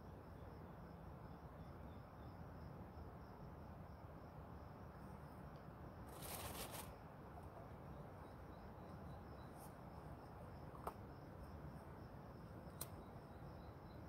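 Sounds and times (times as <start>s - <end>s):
insects chirping: 0.0s - 14.0s.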